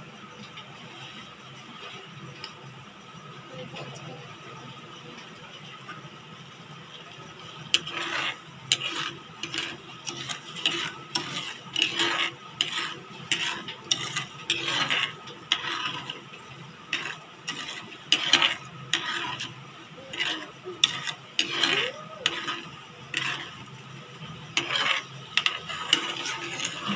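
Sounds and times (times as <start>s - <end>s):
ladle scraping a metal pan: 7.7s - 26.9s.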